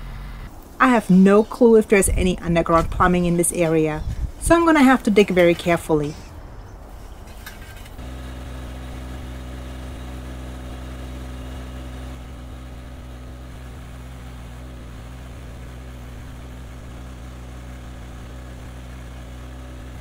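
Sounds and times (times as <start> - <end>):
tractor diesel engine idling: 8.0 - 20.0.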